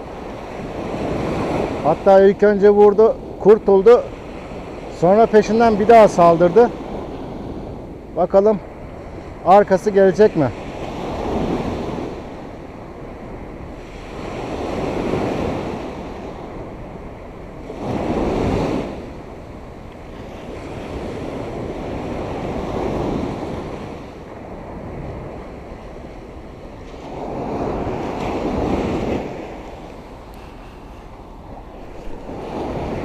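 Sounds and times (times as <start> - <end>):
surf washing up sandy beach: 0.0 - 33.0
wind buffeting microphone: 0.0 - 33.0.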